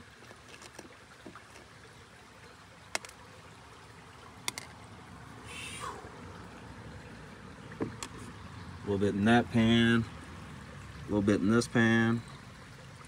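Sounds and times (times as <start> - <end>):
water moving in a plastic pan: 0.0 - 2.0
creek flowing: 0.0 - 13.0.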